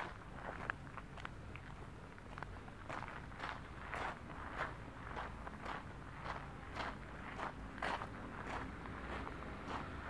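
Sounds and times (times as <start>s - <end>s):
footsteps crunching on gravel: 0.0s - 10.0s.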